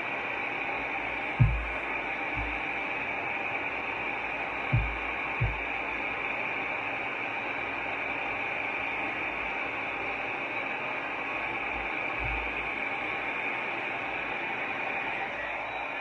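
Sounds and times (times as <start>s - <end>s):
low thumps: 1.4s - 1.8s, 2.4s - 2.6s, 4.7s - 5.7s
hair dryer running: 1.4s - 2.9s, 4.7s - 5.9s, 11.4s - 13.1s.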